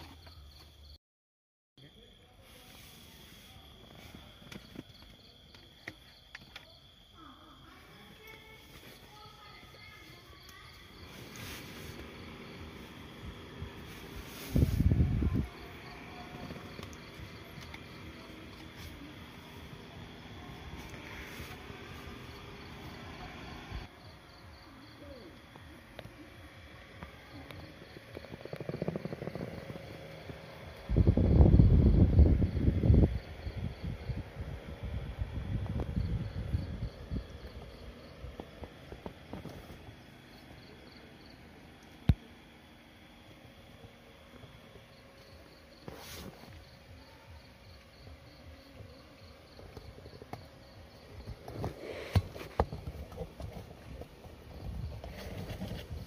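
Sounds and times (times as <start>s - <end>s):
crickets chirping: 0.0s - 1.0s, 1.8s - 56.0s
low background hum: 1.9s - 56.0s.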